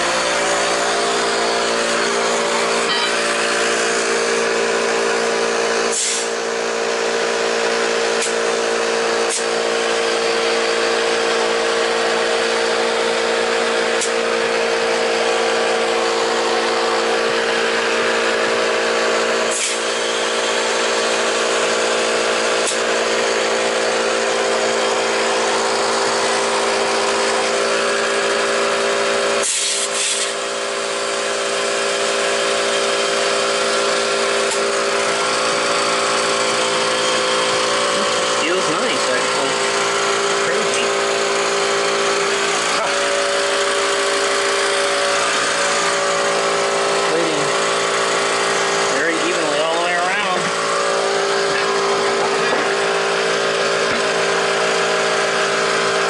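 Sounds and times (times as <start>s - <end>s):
air compressor motor hum: 0.0s - 56.0s
hiss of air: 5.9s - 6.4s, 19.5s - 19.9s, 29.4s - 30.4s.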